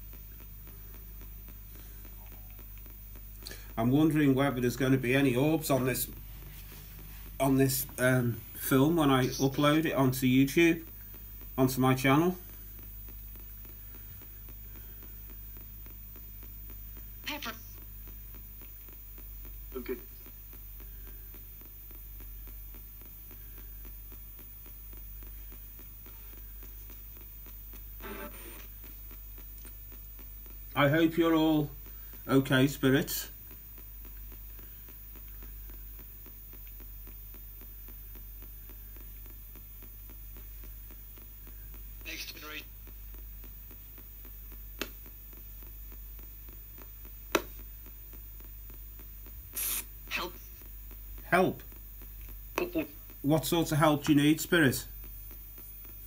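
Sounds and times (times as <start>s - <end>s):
radio station sound: 0.0s - 23.6s, 24.6s - 33.6s, 40.4s - 43.8s, 49.4s - 55.7s
radio static hiss and hum: 0.0s - 56.0s
rapid regular clicks: 0.0s - 56.0s.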